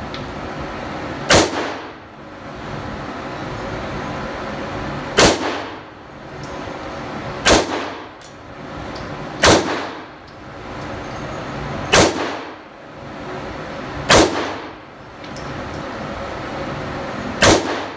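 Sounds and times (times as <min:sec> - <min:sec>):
handgun shots echoing indoors: 0:01.3 - 0:02.0, 0:05.2 - 0:05.8, 0:07.4 - 0:08.3, 0:09.4 - 0:10.1, 0:11.9 - 0:12.6, 0:14.1 - 0:14.8, 0:17.4 - 0:17.9.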